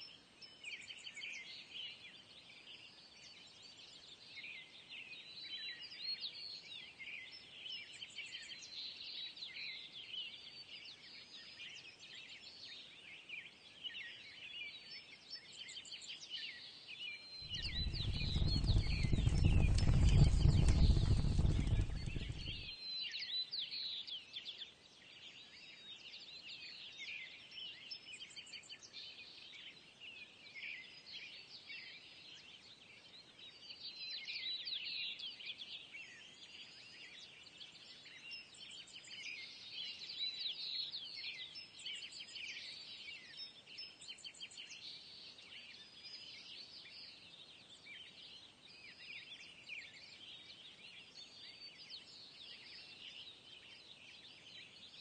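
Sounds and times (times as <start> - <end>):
songbirds chirping: 0.0 - 23.5, 35.2 - 55.0.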